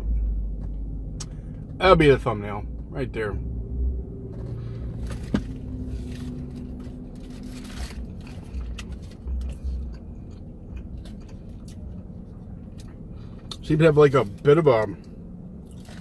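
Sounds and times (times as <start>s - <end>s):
low steady rumble: 0.0s - 16.0s
person chewing with mouth clicks: 8.4s - 13.6s.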